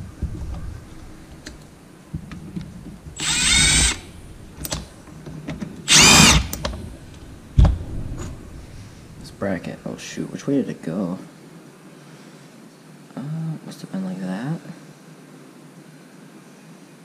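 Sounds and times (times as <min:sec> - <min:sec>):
cordless power tool whining: 0:03.1 - 0:04.9, 0:05.9 - 0:06.8
sharp thump: 0:06.6 - 0:09.9.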